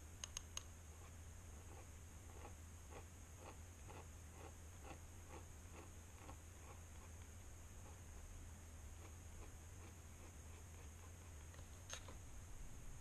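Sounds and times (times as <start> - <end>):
sharp clicks: 0.2 - 0.7
pen nib scratching on paper: 0.9 - 12.2.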